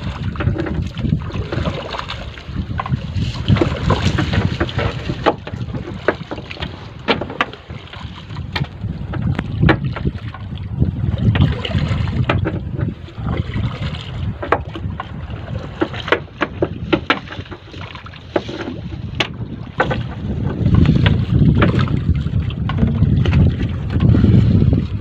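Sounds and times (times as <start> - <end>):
water splashing: 0.0 - 25.0
wind buffeting microphone: 0.0 - 25.0
sharp knocks: 4.2 - 7.6.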